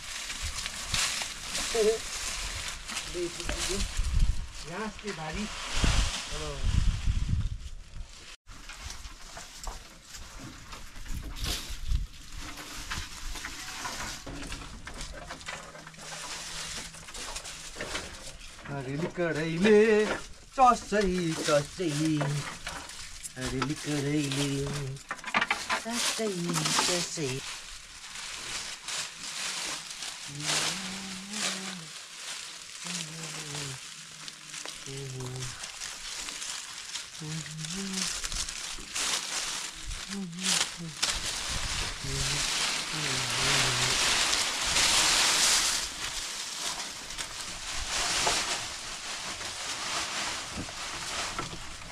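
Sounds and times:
leafy branches rustling: 0:00.0 - 0:51.9
low drawn-out vocal sound: 0:42.0 - 0:44.1.

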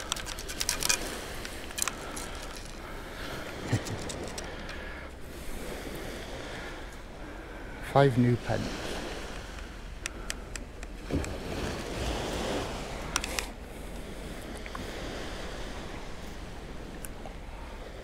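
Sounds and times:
metal scoop clicks: 0:00.0 - 0:02.8
surf: 0:00.0 - 0:18.0
wind: 0:00.0 - 0:18.0.

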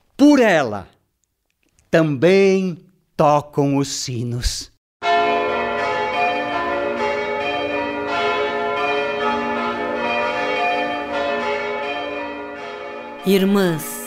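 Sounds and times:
church bells pealing: 0:05.0 - 0:14.0.

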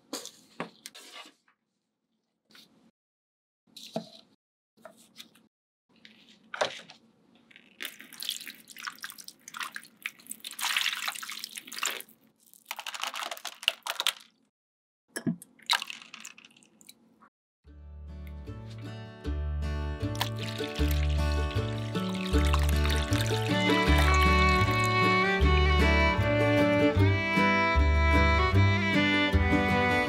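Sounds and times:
water pouring and splashing: 0:07.7 - 0:14.4, 0:15.6 - 0:17.0, 0:20.1 - 0:25.0.

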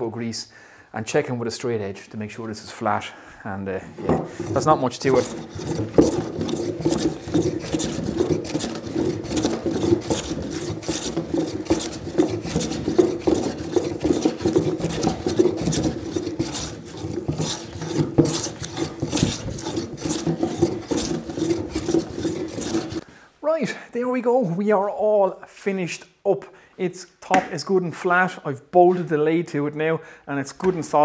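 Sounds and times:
hand plane shaving wood: 0:04.0 - 0:23.0.

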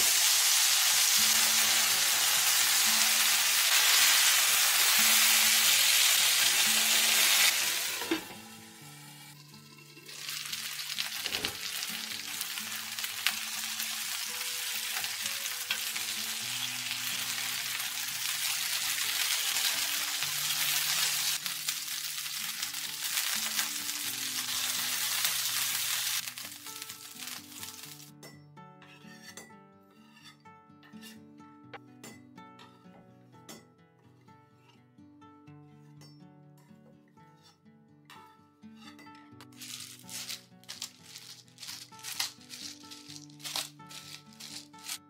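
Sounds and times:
chicken sizzling in a frying pan: 0:00.0 - 0:09.4, 0:10.0 - 0:28.1
metal spatula scraping: 0:28.8 - 0:31.3, 0:37.3 - 0:45.0.

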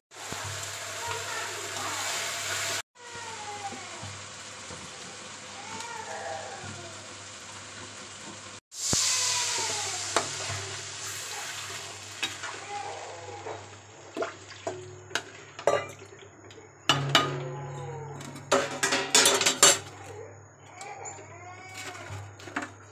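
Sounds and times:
gravy sizzling and bubbling: 0:00.1 - 0:22.9
metal ladle knocking against pan: 0:16.9 - 0:19.8.

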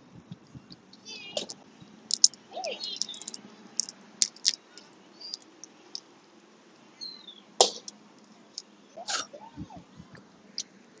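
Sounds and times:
shells cracking and snapping: 0:02.1 - 0:02.4, 0:03.0 - 0:06.1.

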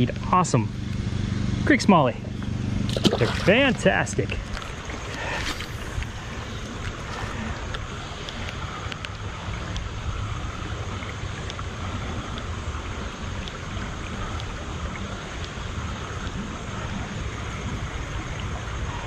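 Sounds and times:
creek water running over rocks: 0:01.7 - 0:19.0
faint clicks: 0:06.8 - 0:09.9.

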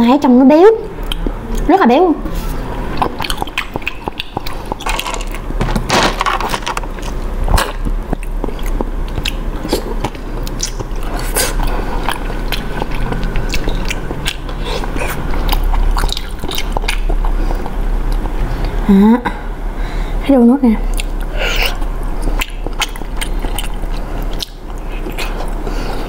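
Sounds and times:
chewing with mouth clicks: 0:01.0 - 0:01.7, 0:02.8 - 0:05.4, 0:07.0 - 0:18.8, 0:20.9 - 0:26.0.

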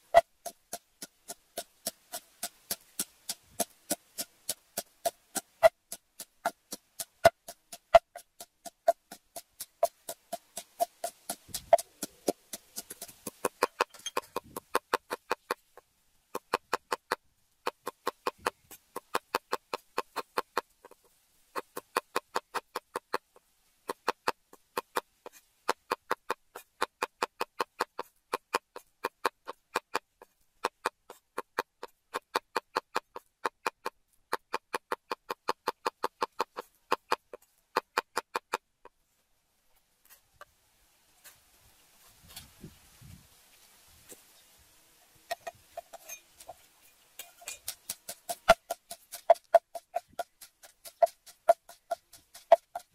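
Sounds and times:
pestle pounding in a mortar: 0:00.2 - 0:15.4, 0:47.2 - 0:52.9.

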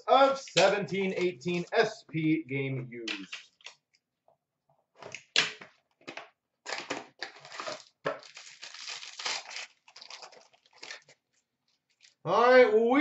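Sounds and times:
plastic wrap and cardboard crinkling: 0:06.7 - 0:12.2.

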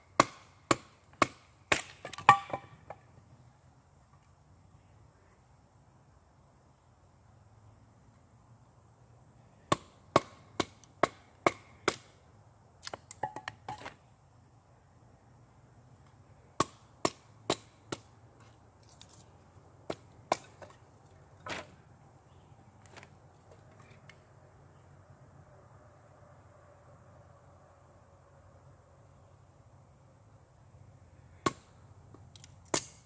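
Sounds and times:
hatchet knocking firewood: 0:00.2 - 0:02.7, 0:09.7 - 0:12.1, 0:12.8 - 0:13.9, 0:16.6 - 0:18.1, 0:31.4 - 0:33.0.

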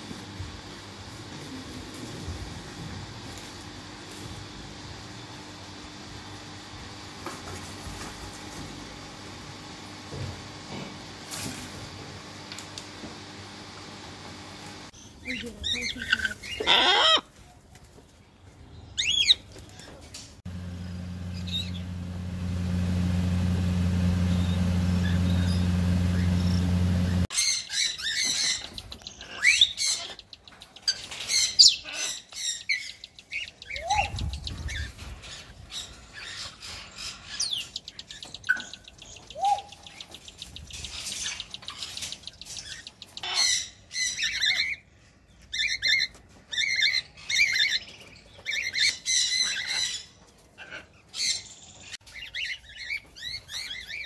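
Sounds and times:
cockatiels chirping and calling: 0:15.2 - 0:17.3, 0:19.0 - 0:19.4, 0:27.4 - 0:44.8, 0:45.5 - 0:54.0
steady low hum: 0:20.3 - 0:27.3.

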